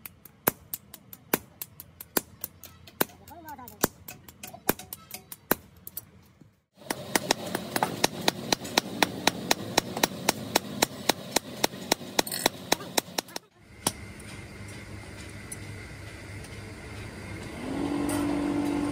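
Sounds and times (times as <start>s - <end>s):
hammer striking hot metal on anvil: 3.8s - 5.6s, 6.8s - 14.1s.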